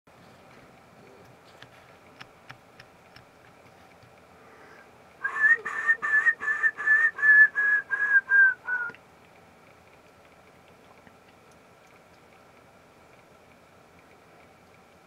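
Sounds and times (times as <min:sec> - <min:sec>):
woodpecker call of falling whistles: 0:05.2 - 0:09.0.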